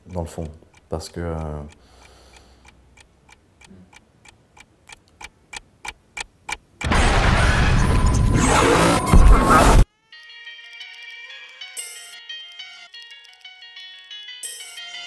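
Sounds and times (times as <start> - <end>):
clock-like ticking: 0.0 - 6.9.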